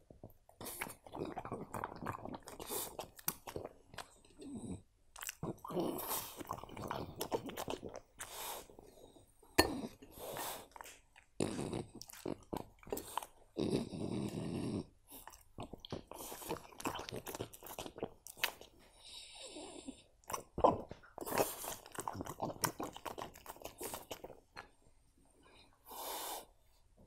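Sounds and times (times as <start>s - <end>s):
dog chewing food: 0.6s - 19.0s, 20.2s - 24.7s.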